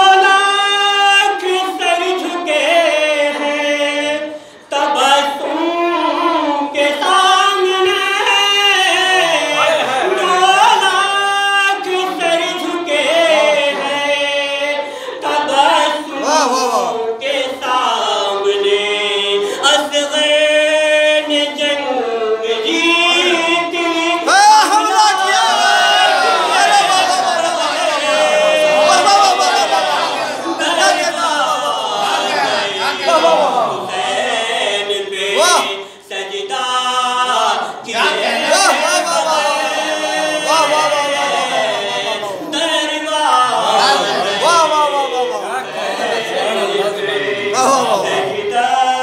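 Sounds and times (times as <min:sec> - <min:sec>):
man chanting into a microphone: 0:00.0 - 0:25.4, 0:34.4 - 0:45.7, 0:47.5 - 0:49.0.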